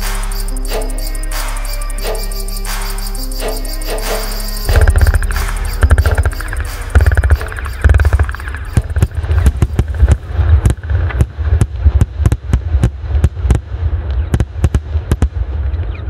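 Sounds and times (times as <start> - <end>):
deep rumble: 4.4 - 16.0
fireworks bangs and crackling pops: 4.7 - 15.8.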